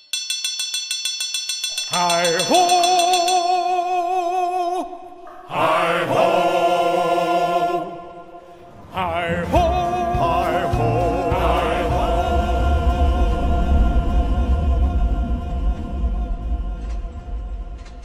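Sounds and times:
choir holding long chords: 5.2s - 18.0s
low rumble: 8.6s - 18.0s.

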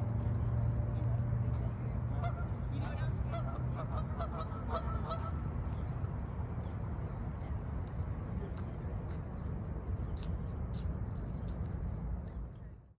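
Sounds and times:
low outdoor rumble: 0.0s - 12.9s
geese honking: 2.2s - 2.5s, 3.3s - 5.3s.

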